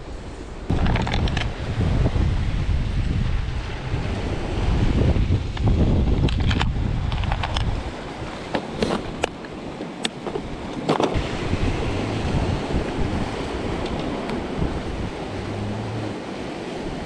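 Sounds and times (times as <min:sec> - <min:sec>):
surf washing over rocks: 0:00.0 - 0:17.0
wind on microphone: 0:00.0 - 0:17.0.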